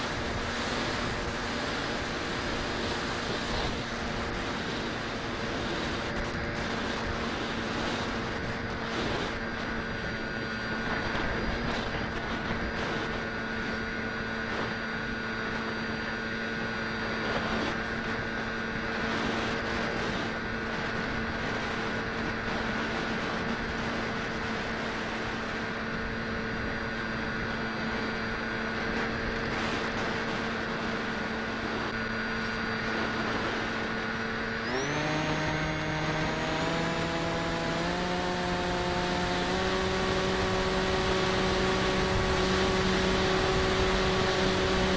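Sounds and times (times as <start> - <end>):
model plane motor whining: 0.0 - 44.9
wind noise: 0.0 - 44.9.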